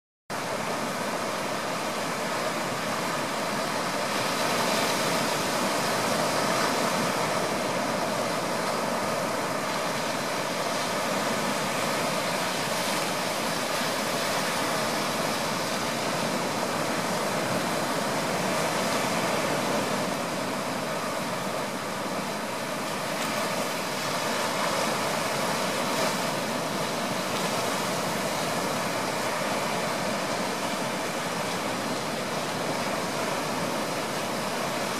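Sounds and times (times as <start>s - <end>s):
small waves washing ashore: 0.3s - 34.9s.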